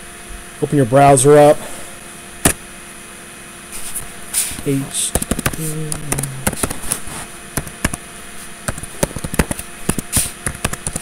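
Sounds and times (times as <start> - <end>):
computer keyboard typing: 5.1 - 6.8, 7.6 - 8.0, 8.7 - 11.0.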